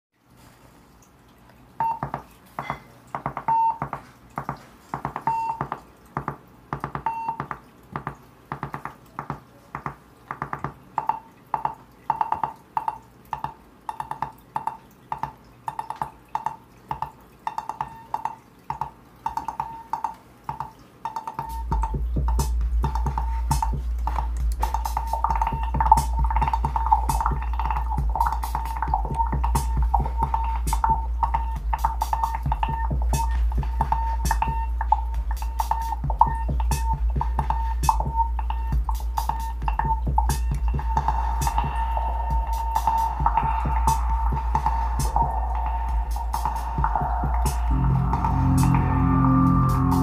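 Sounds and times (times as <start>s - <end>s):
plucky synthesizer notes: 10.6s - 50.0s
loud low drone: 43.2s - 50.0s.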